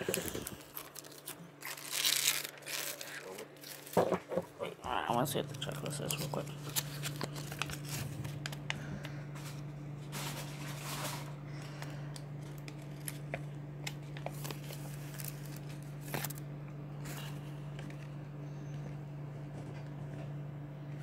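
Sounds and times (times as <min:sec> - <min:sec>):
packaging and paper rustling: 0:00.0 - 0:04.6, 0:05.3 - 0:16.4
steady low hum: 0:00.0 - 0:21.0.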